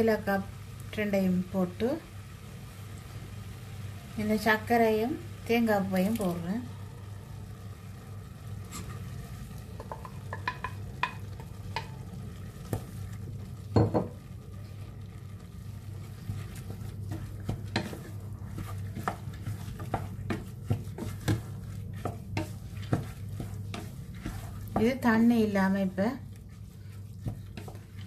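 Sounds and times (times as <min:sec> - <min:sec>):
steady low hum: 0:00.0 - 0:28.0
wooden spatula scraping saucepan: 0:08.6 - 0:13.4, 0:15.9 - 0:28.0
spatula knocking against pot: 0:09.8 - 0:12.0.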